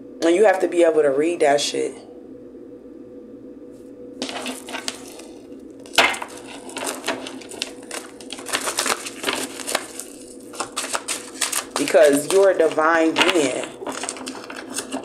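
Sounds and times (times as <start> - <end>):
cards being shuffled: 4.2 - 15.0.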